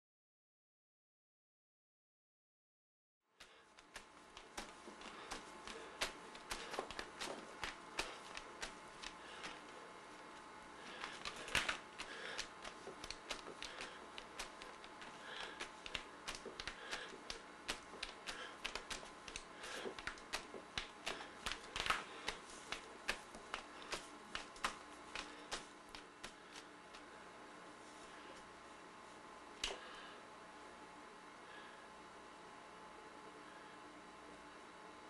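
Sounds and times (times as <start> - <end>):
fingertips tapping paint on paper: 3.4 - 9.8, 10.4 - 27.1.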